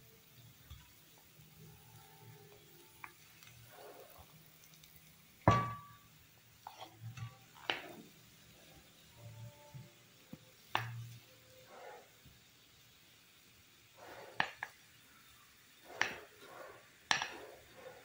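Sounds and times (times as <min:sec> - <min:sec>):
spoon knocking against pan: 0:05.5 - 0:06.0, 0:17.1 - 0:17.4.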